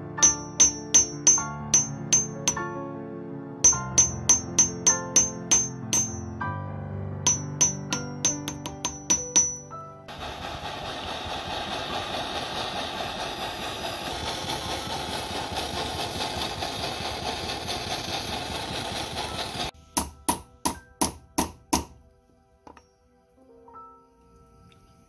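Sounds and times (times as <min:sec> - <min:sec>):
hammer blows on anvil: 0:00.2 - 0:02.8, 0:03.6 - 0:06.4, 0:07.3 - 0:09.8
gas torch flame hissing: 0:10.1 - 0:19.8.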